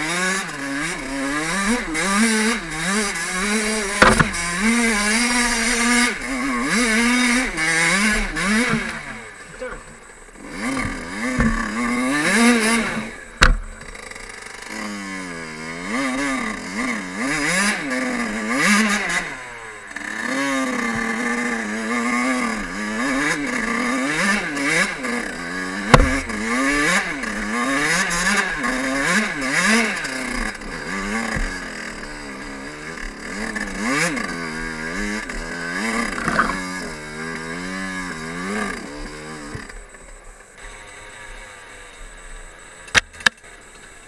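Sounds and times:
two-stroke engine revving: 0.0s - 43.6s
sharp knock: 4.0s - 4.4s, 13.4s - 13.9s, 25.9s - 26.5s.

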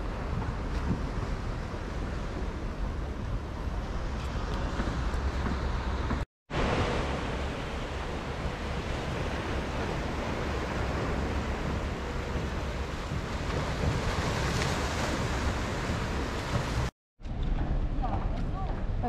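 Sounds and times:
wind buffeting microphone: 0.0s - 19.0s
small waves on rocks and pebbles: 6.6s - 16.9s.

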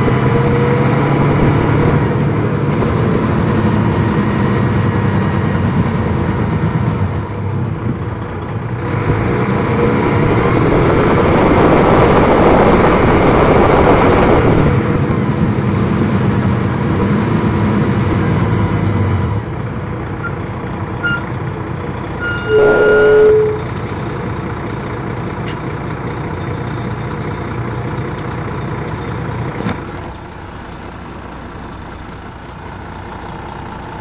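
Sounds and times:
bus diesel engine running: 0.0s - 34.0s
brief loud tone: 21.0s - 21.4s, 22.1s - 23.8s
short beep: 21.0s - 21.4s, 22.2s - 23.8s.

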